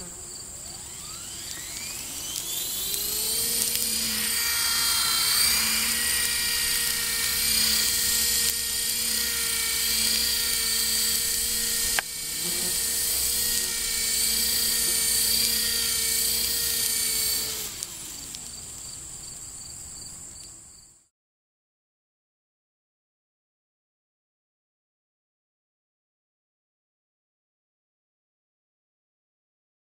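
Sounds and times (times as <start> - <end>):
faint hum: 0.0 - 20.8
model helicopter high whine: 0.0 - 21.1
sharp click: 1.4 - 4.0, 10.0 - 12.2.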